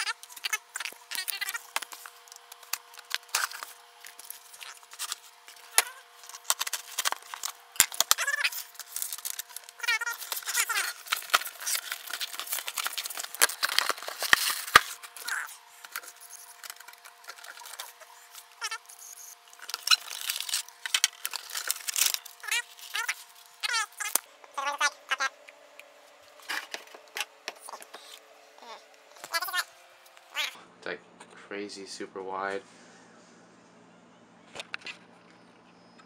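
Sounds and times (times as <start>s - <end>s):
packing paper rustling: 0.0s - 24.2s.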